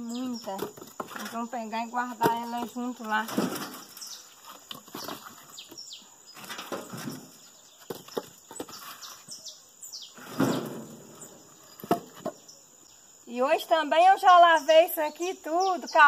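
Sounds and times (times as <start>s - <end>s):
firewood logs knocking together: 0.1s - 1.5s, 2.1s - 5.8s, 6.4s - 9.0s, 11.7s - 12.4s.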